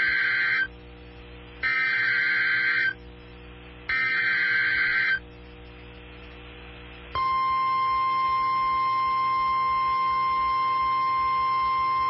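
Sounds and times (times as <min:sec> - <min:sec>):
warbling data bursts: 0:00.0 - 0:00.7, 0:01.6 - 0:03.0, 0:03.9 - 0:05.2
faint steady hum: 0:00.0 - 0:12.0.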